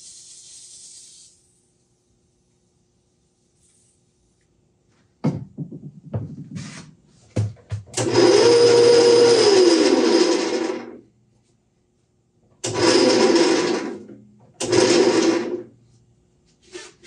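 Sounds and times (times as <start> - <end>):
lathe spindle whirring: 8.0 - 11.0, 12.6 - 15.7.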